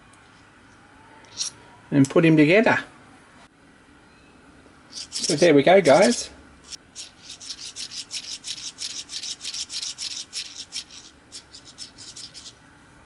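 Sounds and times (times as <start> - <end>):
model steam engine piston sliding: 7.0 - 12.5.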